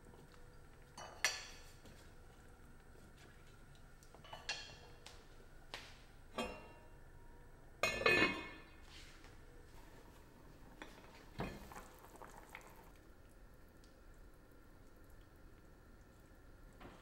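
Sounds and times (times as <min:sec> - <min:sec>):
lid clattering onto pot: 0:07.8 - 0:08.6.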